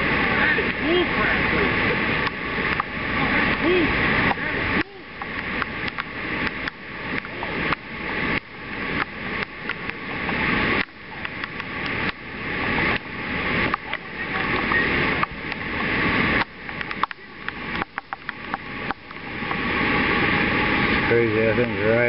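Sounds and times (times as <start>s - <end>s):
floodwater rushing across road: 0.0s - 22.0s
scattered clicks: 5.2s - 7.8s, 16.4s - 19.2s.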